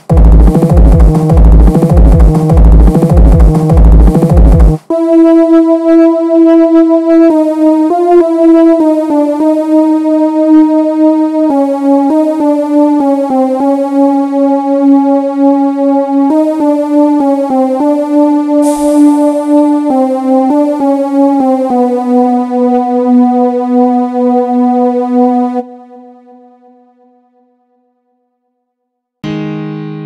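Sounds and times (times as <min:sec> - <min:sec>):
loud drum passage: 0:00.0 - 0:04.9
synth playing slow melody: 0:00.0 - 0:27.4.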